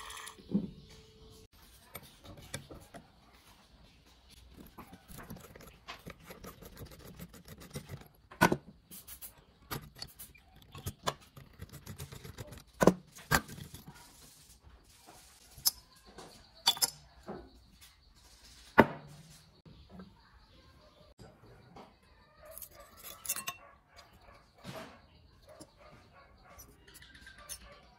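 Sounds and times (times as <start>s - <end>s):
screwdriver scraping metal screws: 4.4s - 8.1s, 9.6s - 13.9s, 22.5s - 23.7s
sharp metal clinks and knocks: 15.6s - 17.2s.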